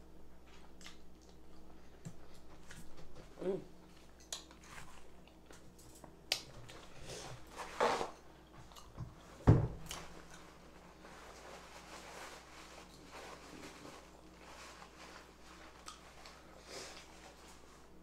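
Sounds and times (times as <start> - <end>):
paper napkin rustle: 10.5 - 18.0.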